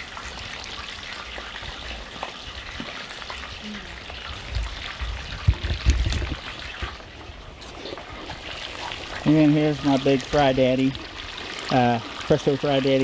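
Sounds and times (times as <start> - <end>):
oil sizzling with pops: 0.0 - 13.0.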